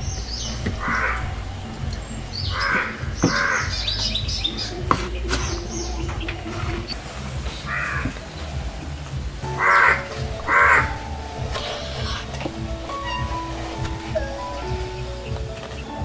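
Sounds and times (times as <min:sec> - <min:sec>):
small birds chirping: 0:00.0 - 0:16.0
crows cawing: 0:00.8 - 0:01.5, 0:02.4 - 0:03.9, 0:07.7 - 0:08.2, 0:09.5 - 0:15.0.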